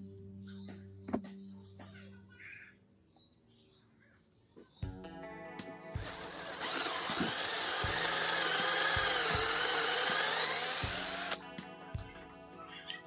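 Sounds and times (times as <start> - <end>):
drill boring into wood: 6.0 - 11.4.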